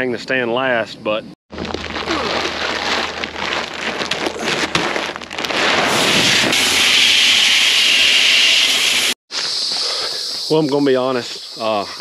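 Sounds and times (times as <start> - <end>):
dried corn pouring from sack: 1.6 - 6.6.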